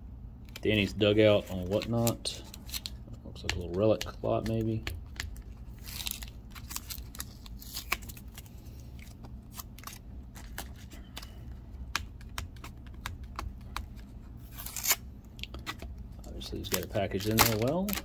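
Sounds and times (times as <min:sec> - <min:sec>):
tape peeling off: 0:13.3 - 0:15.8, 0:16.6 - 0:18.0
tape ripping hiss: 0:16.4 - 0:18.0
plastic clicks and crackles: 0:16.6 - 0:18.0.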